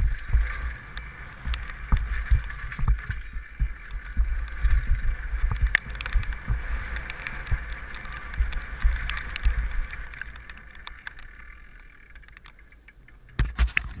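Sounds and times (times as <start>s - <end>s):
bike rattling and knocking: 0.0s - 14.0s
tyres on dirt and gravel: 0.0s - 14.0s
wind rumbling on microphone: 0.0s - 14.0s.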